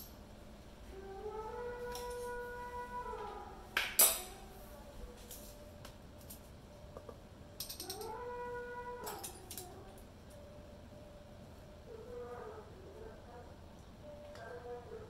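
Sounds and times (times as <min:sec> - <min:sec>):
light clinks: 0:07.6 - 0:08.1.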